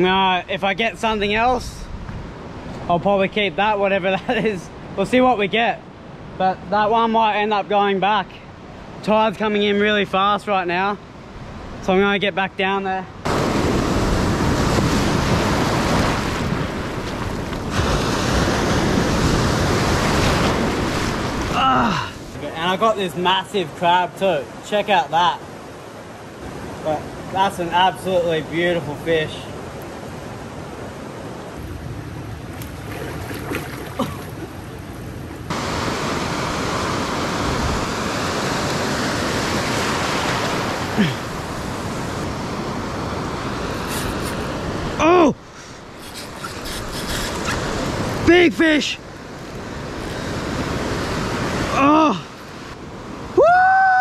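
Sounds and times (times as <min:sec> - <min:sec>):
surf breaking over reef: 0:13.2 - 0:22.4
ocean surf breaking: 0:13.2 - 0:54.0
water sloshing around wading person: 0:32.5 - 0:35.5.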